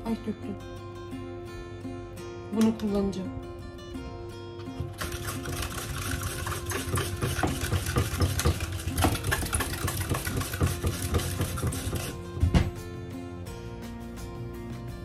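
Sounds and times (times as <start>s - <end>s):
cabbage rasping on a slicer: 4.9s - 12.2s.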